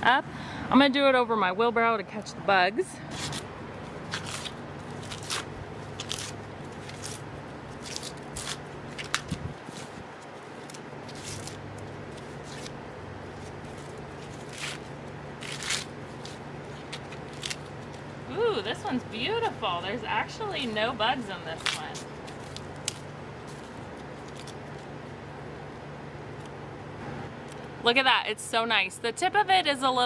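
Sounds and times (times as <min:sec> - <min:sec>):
steady low hum: 0:00.0 - 0:30.0
corn husks tearing and rustling: 0:03.1 - 0:19.3, 0:20.3 - 0:25.2.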